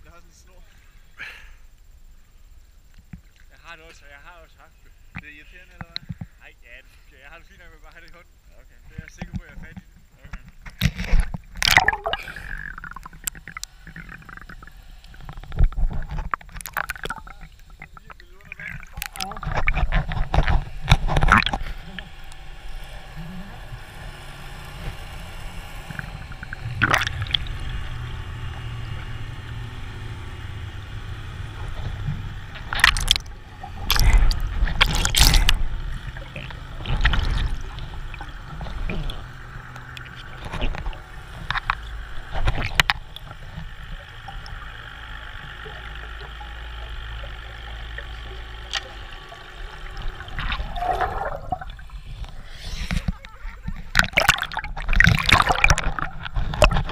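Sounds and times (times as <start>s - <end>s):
underwater low rumble: 10.5s - 56.9s
water bubbling and sloshing: 10.8s - 22.8s, 25.7s - 28.7s, 31.7s - 56.9s.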